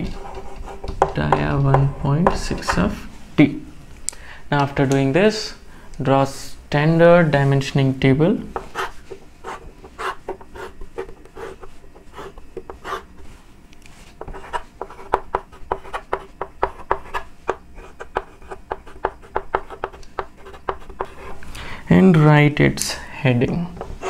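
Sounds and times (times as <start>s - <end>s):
chalk tapping and scratching: 0.0s - 2.8s, 8.5s - 13.3s, 13.9s - 21.4s
chalk scraping on blackboard: 8.6s - 13.2s, 14.0s - 21.4s.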